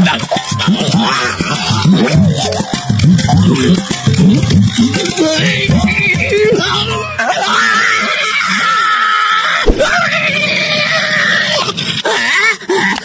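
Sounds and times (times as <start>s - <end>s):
sharp thump: 9.6s - 10.0s.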